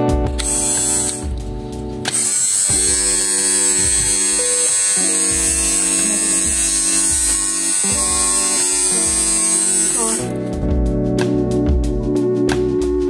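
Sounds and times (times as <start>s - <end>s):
pet clipper buzzing: 0.4s - 1.4s, 2.1s - 10.4s.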